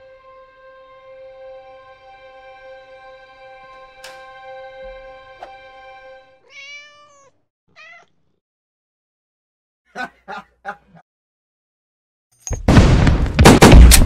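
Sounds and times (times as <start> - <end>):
background music: 0.0 - 6.5
cat meowing: 6.4 - 8.2.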